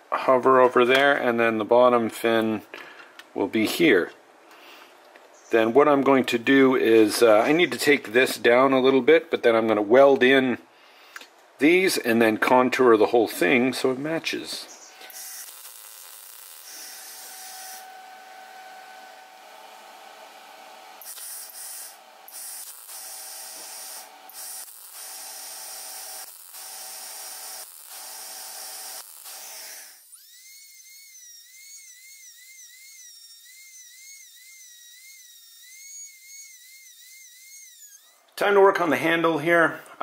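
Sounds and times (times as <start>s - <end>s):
welder crackling: 13.3s - 39.4s
rotary tool grinding steel: 14.8s - 38.4s.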